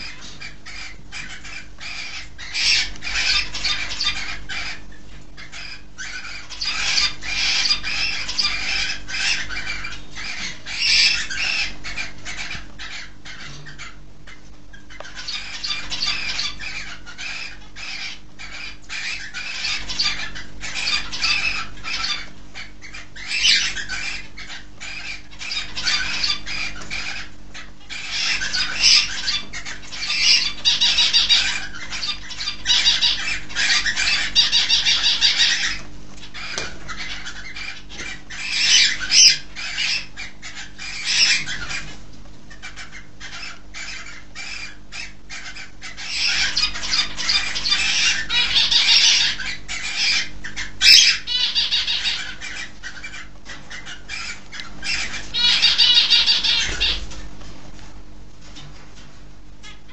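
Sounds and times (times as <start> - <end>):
caged birds chirping: 0.0 - 59.9.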